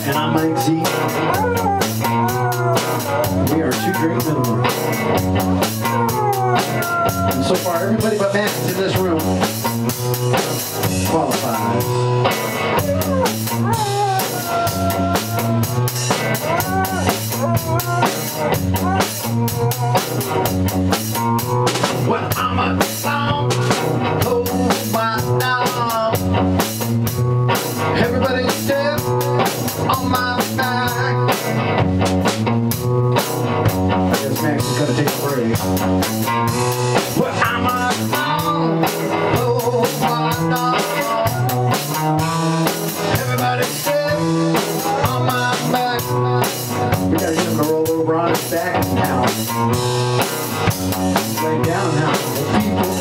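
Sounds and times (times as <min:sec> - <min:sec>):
rock band playing: 0:00.0 - 0:53.0
dog howling: 0:00.2 - 0:04.8, 0:05.7 - 0:07.9, 0:12.7 - 0:20.6.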